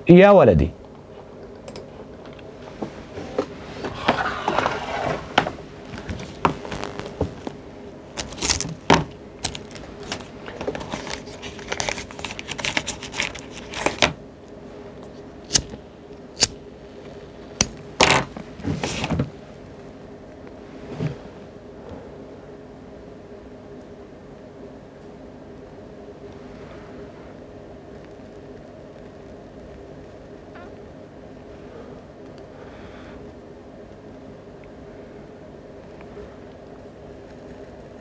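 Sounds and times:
low electrical hum: 0.0s - 38.0s
keyboard and mouse clicks: 1.4s - 1.9s.

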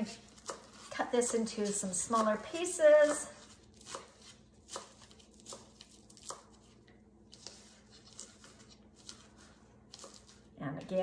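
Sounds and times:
knife chopping on cutting board: 3.0s - 6.5s.

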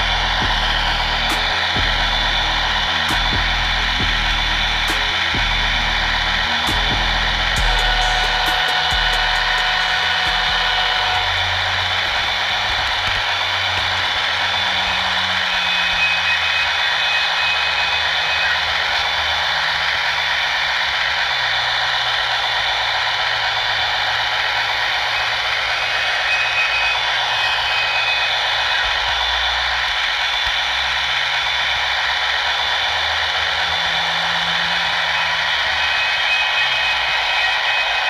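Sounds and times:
low hum: 0.0s - 20.4s
model train whirring rumble: 0.0s - 38.0s.

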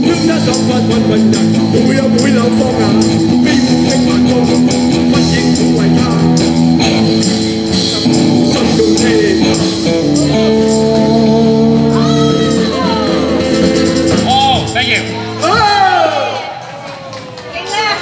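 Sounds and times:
tambourine: 0.0s - 13.1s
sliding guitar notes: 0.0s - 15.4s
live band music: 0.0s - 16.2s.

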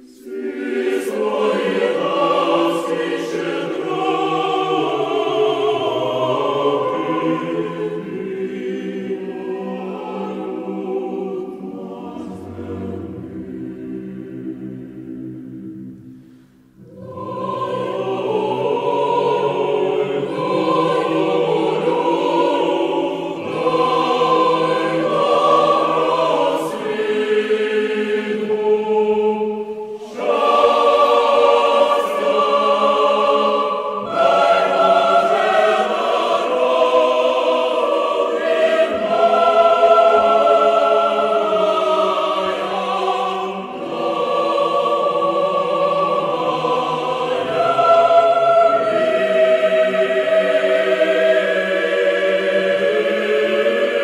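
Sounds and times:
choir holding long chords: 0.0s - 54.0s.

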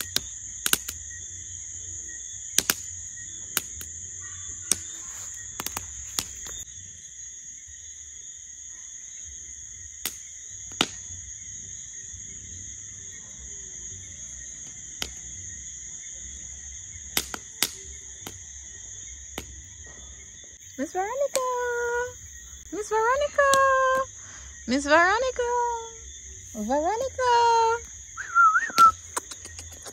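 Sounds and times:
campfire pops and crackles: 0.0s - 6.7s, 9.8s - 11.4s, 14.5s - 24.2s, 26.9s - 29.9s
night insects chirping: 0.0s - 29.9s.

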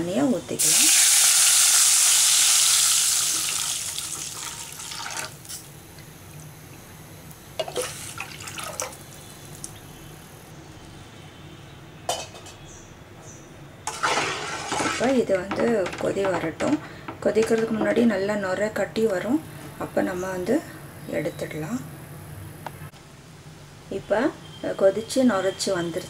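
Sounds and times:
liquid hissing in hot oil: 0.5s - 5.7s.

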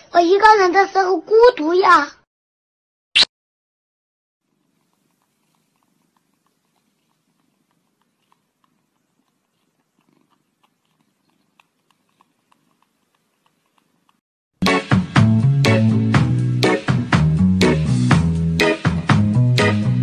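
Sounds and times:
cat purring: 4.4s - 14.2s
cat mouth clicks: 4.5s - 14.2s.

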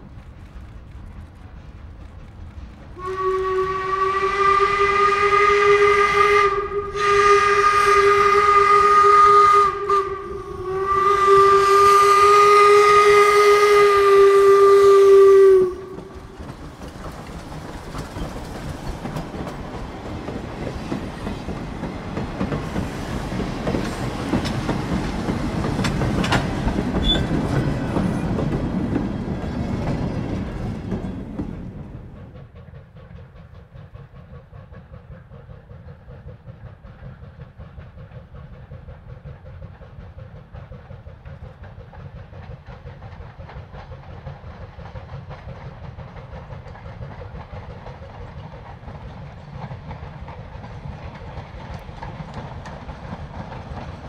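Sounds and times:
train rumbling past on rails: 0.0s - 54.0s
steam whistle blasts: 3.0s - 16.1s.

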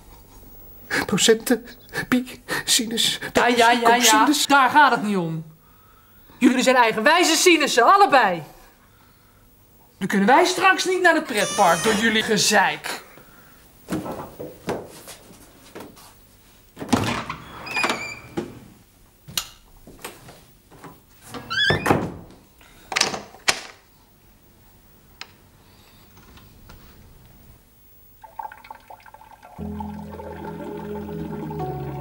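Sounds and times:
door hinge squeak: 11.4s - 12.2s, 17.4s - 18.4s, 21.5s - 22.0s
wooden door thudding and banging: 16.8s - 18.0s, 21.5s - 22.3s
soft music: 29.6s - 32.0s.

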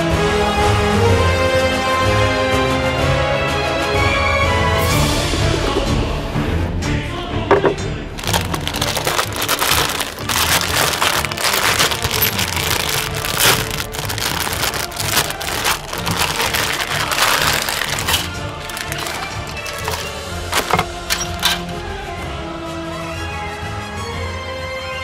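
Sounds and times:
background music: 0.0s - 25.0s
plastic bag crinkling: 8.2s - 21.8s.

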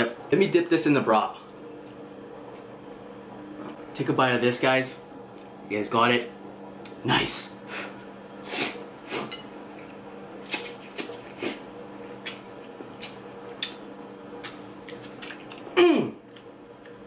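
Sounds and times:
person slurping noodles: 8.5s - 9.3s, 10.5s - 11.6s
chewing: 14.4s - 17.0s.

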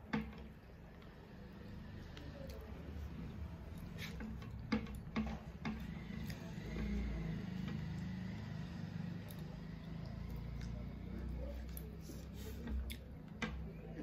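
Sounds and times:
fingers mixing rice on plate: 0.0s - 14.0s
chewing: 9.1s - 13.4s.

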